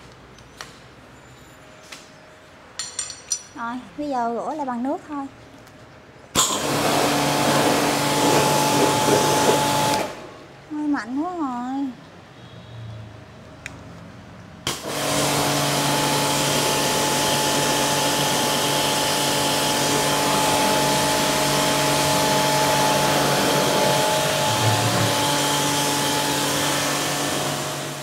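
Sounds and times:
pressure washer motor hum: 0:06.4 - 0:10.4, 0:14.7 - 0:28.0
water jet spraying: 0:06.6 - 0:10.2, 0:14.7 - 0:28.0.

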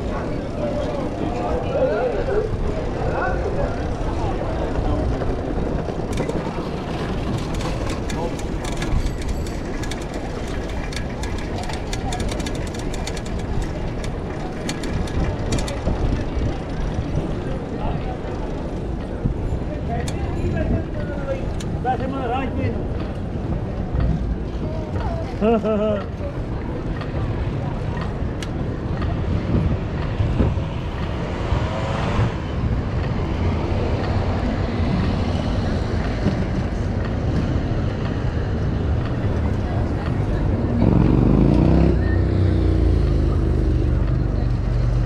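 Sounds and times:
bicycle tyres rumbling on cobblestones: 0:00.0 - 0:45.0
bicycle rattling clicks: 0:05.9 - 0:17.4
wind buffeting microphone: 0:26.4 - 0:42.7.

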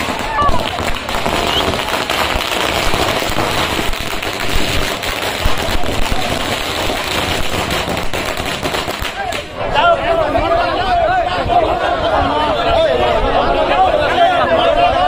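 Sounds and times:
firecrackers banging: 0:00.0 - 0:09.6.

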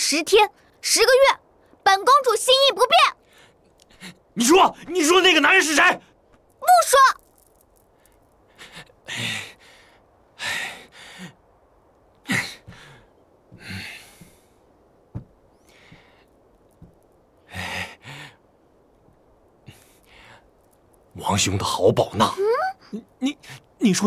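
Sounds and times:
person sighing and huffing: 0:08.5 - 0:11.5, 0:12.2 - 0:14.5, 0:17.5 - 0:18.4.

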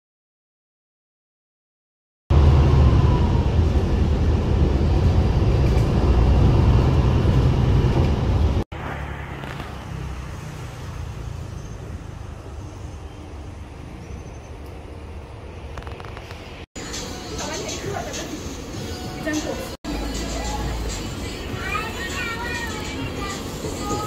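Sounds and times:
bus engine and road rumble: 0:02.3 - 0:24.0
outdoor background noise: 0:02.3 - 0:24.0.

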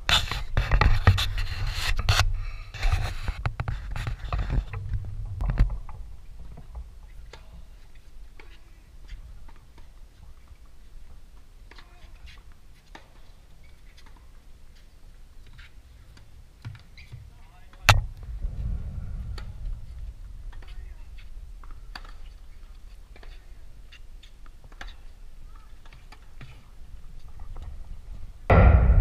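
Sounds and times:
rumbling and scraping on microphone: 0:00.0 - 0:11.1, 0:17.5 - 0:29.0.

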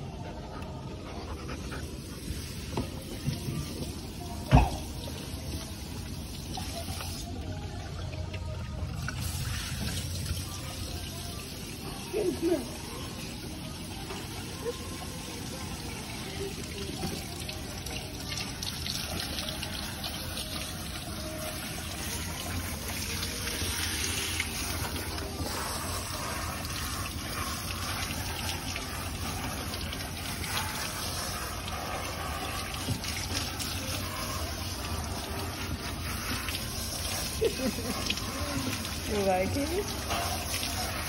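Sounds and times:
hose water spraying: 0:09.0 - 0:41.0
water splashing on tiled floor: 0:15.5 - 0:41.0.

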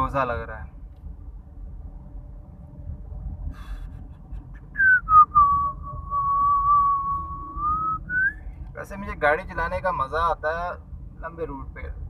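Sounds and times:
car cabin rumble: 0:00.0 - 0:12.0
man whistling: 0:04.8 - 0:08.4.

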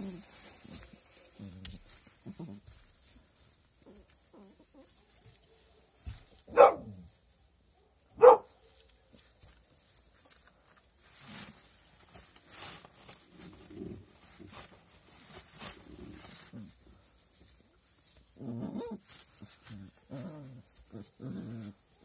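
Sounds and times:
rustling in hay: 0:00.0 - 0:22.0
puppy barking: 0:06.5 - 0:07.0, 0:07.8 - 0:08.8.

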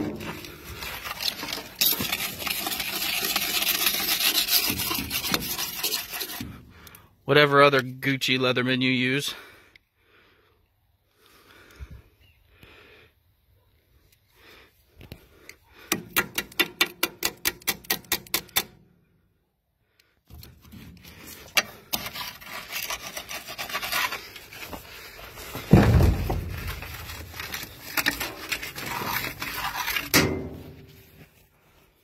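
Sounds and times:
metal tool scraping: 0:00.0 - 0:06.7, 0:20.4 - 0:31.4
rustling: 0:20.7 - 0:32.0
heavy thump: 0:25.5 - 0:26.8.

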